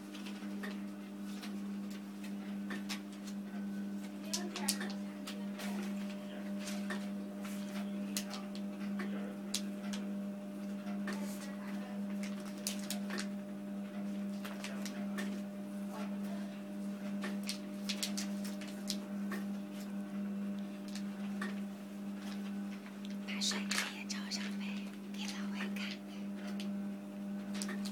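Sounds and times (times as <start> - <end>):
plastic and foil bags crinkling: 12.2 - 13.3, 17.4 - 19.0.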